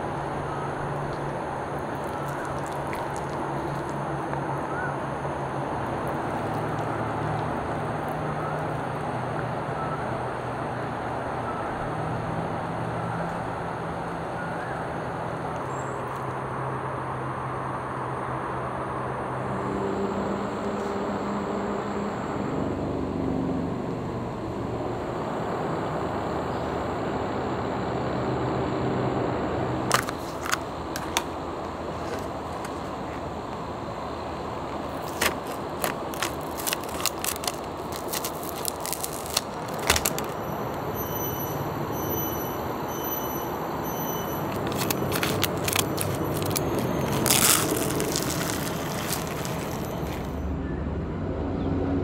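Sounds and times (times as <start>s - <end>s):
steady background noise: 0.0s - 52.0s
foil crinkling and tearing: 1.2s - 4.4s, 29.9s - 31.3s, 31.9s - 32.9s, 34.9s - 40.8s, 44.3s - 50.4s.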